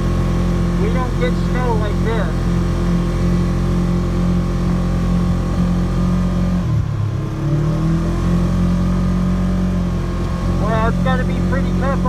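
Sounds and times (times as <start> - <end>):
utility vehicle engine droning: 0.0 - 12.0.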